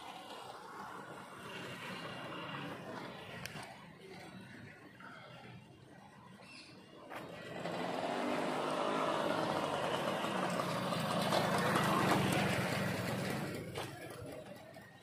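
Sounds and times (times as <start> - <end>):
small motorcycle passing by: 0.0 - 3.4, 7.1 - 15.0.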